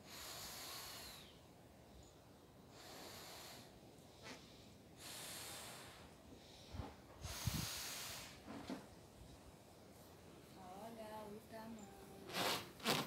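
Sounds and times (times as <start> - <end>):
breath blowing up balloon: 2.8 - 6.0, 7.2 - 8.4, 12.3 - 13.0.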